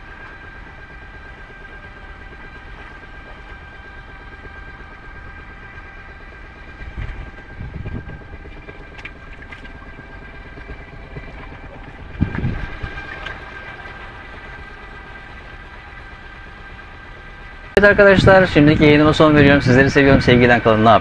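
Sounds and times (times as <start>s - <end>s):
electric motor whine: 0.0s - 21.0s
wind and water rushing: 11.7s - 14.2s.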